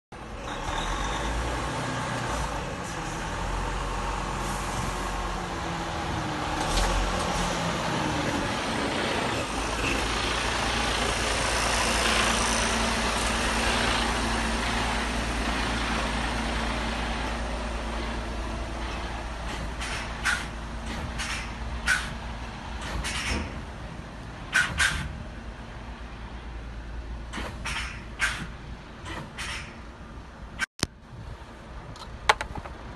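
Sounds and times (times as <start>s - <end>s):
truck diesel engine rumbling: 0.1s - 32.9s
tyre and road noise: 0.1s - 32.9s.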